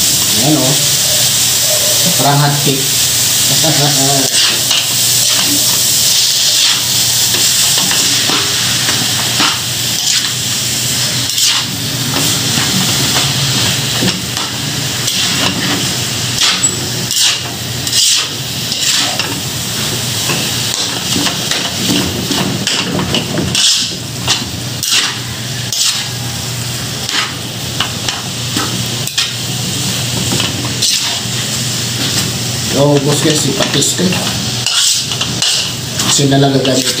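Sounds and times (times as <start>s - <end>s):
food sizzling in oil: 0.0s - 37.0s
metal spatula scraping a wok: 11.3s - 11.8s, 15.1s - 15.8s, 16.4s - 19.3s, 23.5s - 26.2s, 27.0s - 27.4s, 30.8s - 31.3s, 34.6s - 37.0s.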